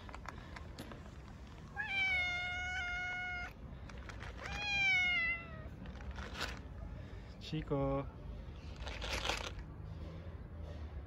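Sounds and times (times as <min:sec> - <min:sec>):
cat meowing: 0:01.8 - 0:03.6, 0:04.4 - 0:05.8.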